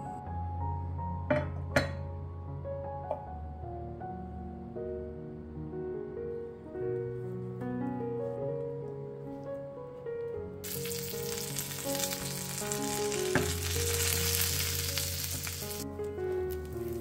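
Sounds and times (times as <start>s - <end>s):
soft piano music: 0.0s - 17.0s
tortillas sizzling in hot oil: 10.6s - 15.8s.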